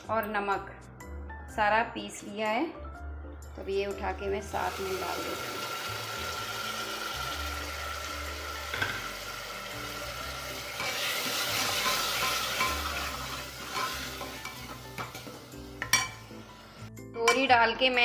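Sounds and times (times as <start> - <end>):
onions sizzling in hot oil: 4.4 - 16.9
spoon knocking on pot: 13.7 - 16.2.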